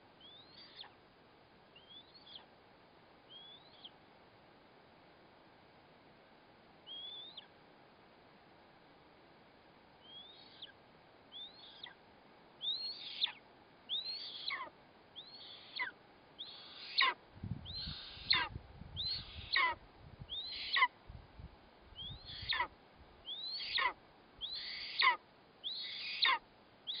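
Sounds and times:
eagle whistled begging calls: 0:00.2 - 0:00.9, 0:01.8 - 0:02.4, 0:03.3 - 0:03.9, 0:06.9 - 0:07.5, 0:10.0 - 0:10.7, 0:11.3 - 0:12.0, 0:12.6 - 0:20.9, 0:22.0 - 0:27.0.

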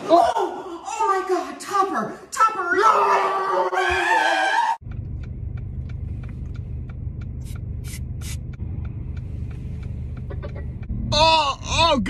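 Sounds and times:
woman screaming: 0:02.9 - 0:04.8
light ticking: 0:04.8 - 0:11.0
car cabin rumble: 0:04.8 - 0:12.0.

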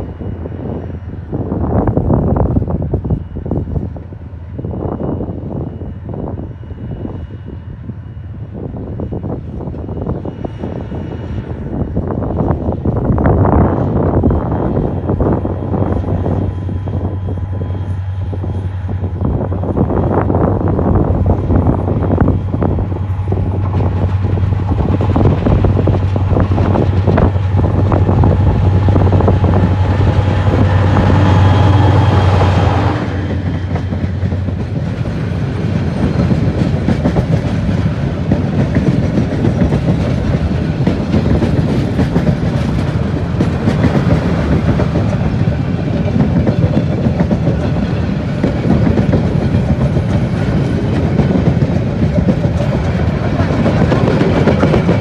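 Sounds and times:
locomotive engine drone: 0:00.0 - 0:55.0
train wheels clattering on rails: 0:12.4 - 0:55.0.

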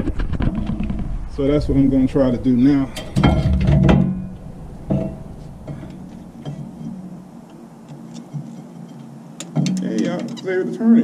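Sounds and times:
pliers ticking against metal: 0:09.4 - 0:10.4.

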